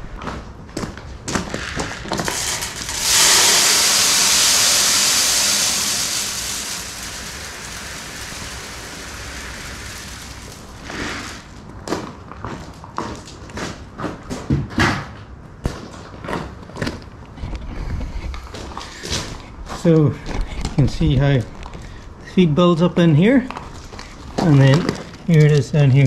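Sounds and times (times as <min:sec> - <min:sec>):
feed pellets pouring into metal hopper: 0:01.4 - 0:11.8.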